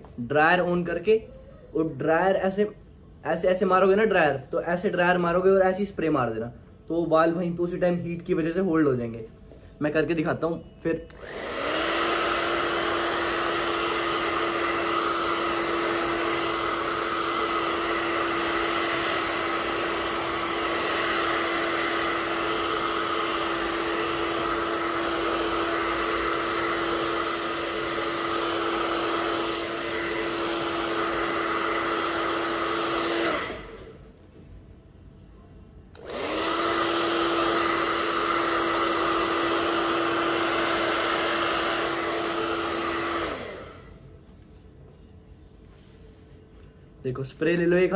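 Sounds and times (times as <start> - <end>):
hair dryer blowing: 11.1 - 34.1, 35.9 - 44.2.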